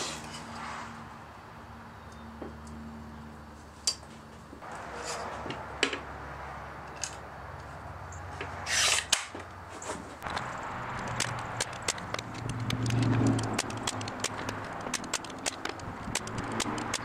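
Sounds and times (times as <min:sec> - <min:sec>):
nail strips clicking and scraping: 0:10.2 - 0:17.0.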